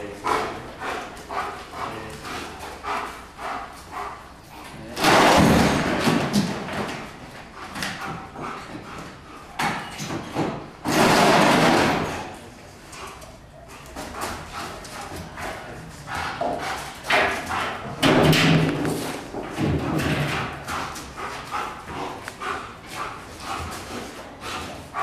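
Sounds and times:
loud clattering bursts: 5.0s - 6.5s, 10.8s - 12.2s.

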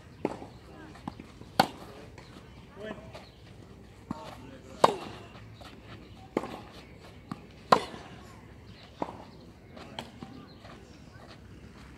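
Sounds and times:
tennis ball bouncing: 0.2s - 2.3s, 4.0s - 5.4s, 6.2s - 8.2s
tennis ball hit by racket: 1.5s - 1.9s, 4.1s - 5.2s, 7.3s - 8.2s.

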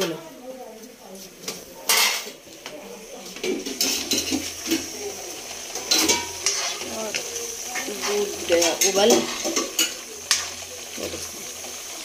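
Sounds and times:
low frying sizzle: 0.0s - 12.0s
spoon scraping and clinking pan: 5.8s - 6.9s.

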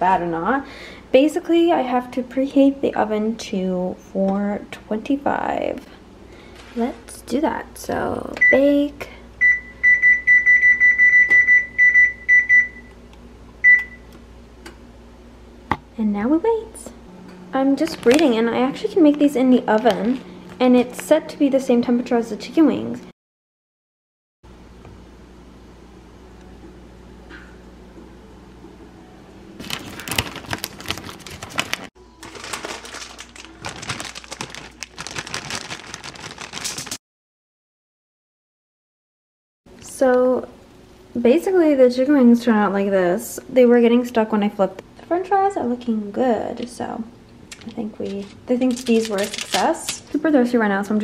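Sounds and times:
oven keypad beeping: 9.4s - 13.0s, 13.6s - 14.1s
aluminium foil crinkling: 17.8s - 18.5s, 19.1s - 21.1s, 29.6s - 37.0s, 47.5s - 50.3s.

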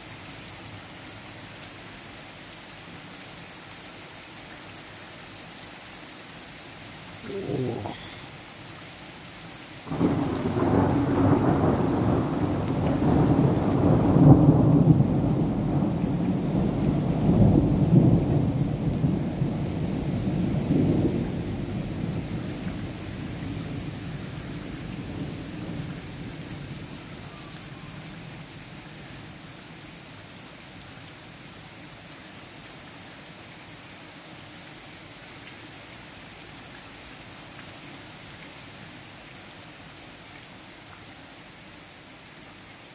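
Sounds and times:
heavy rain: 0.0s - 42.9s
thunder cracking and rumbling: 9.9s - 22.6s.

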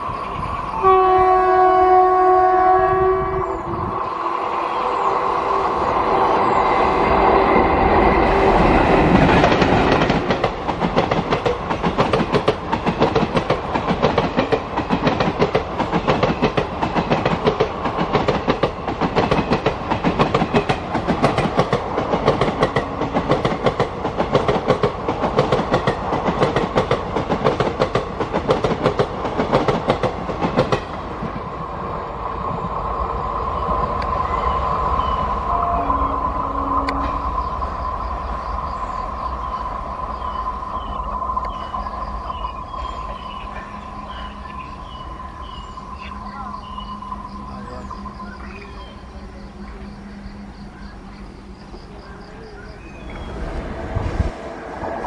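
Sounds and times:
train rushing past: 0.0s - 55.0s
train horn blast: 0.7s - 4.3s, 35.4s - 37.3s
train wheels clattering on rail joints: 8.5s - 31.4s.

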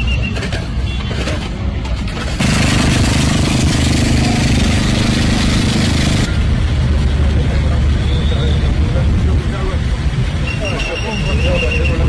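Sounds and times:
engine humming: 1.7s - 8.2s.

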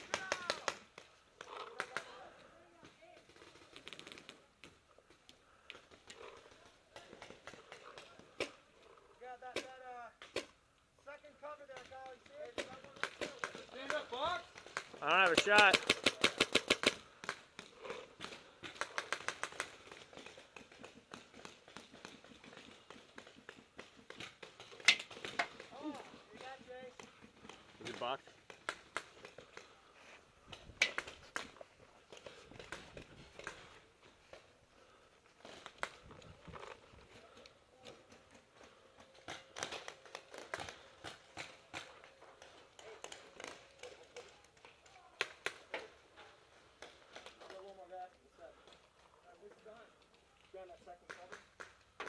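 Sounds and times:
paintball markers firing: 11.7s - 29.8s.

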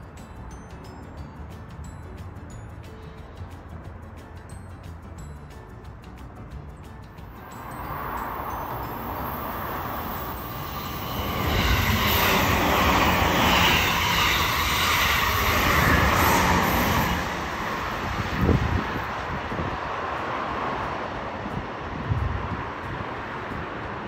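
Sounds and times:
electric train passing: 7.1s - 24.0s
train wheels rumbling: 7.3s - 24.0s.

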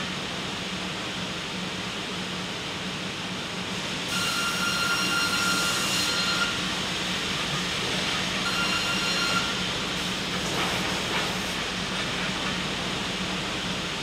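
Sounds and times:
hiss: 0.0s - 14.0s
sawmill machinery din: 8.2s - 9.8s
high machine whine: 8.3s - 9.8s.

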